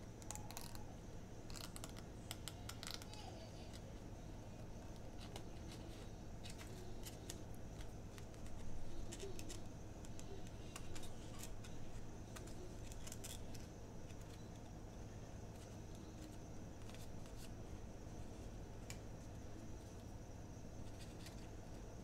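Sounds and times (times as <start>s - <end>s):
steady low hum: 0.0s - 22.0s
scissors snipping paper: 4.8s - 14.7s.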